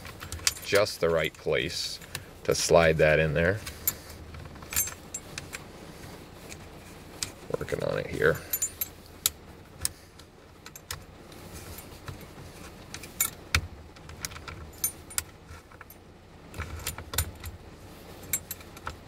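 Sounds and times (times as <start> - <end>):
keys jangling: 8.3 - 9.0, 14.4 - 16.0, 18.2 - 18.8.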